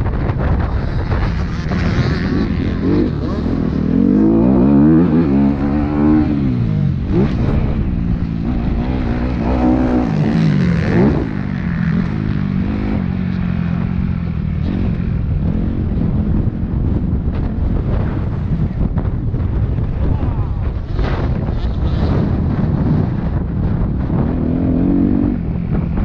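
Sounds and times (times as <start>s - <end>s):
motocross bike engine revving: 0.4s - 18.8s.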